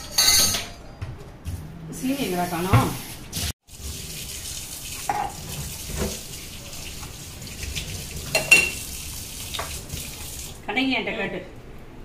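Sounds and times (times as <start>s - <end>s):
dishes clinking in sink: 0.0s - 1.2s, 5.0s - 6.2s, 8.2s - 8.9s
water running: 2.0s - 10.8s.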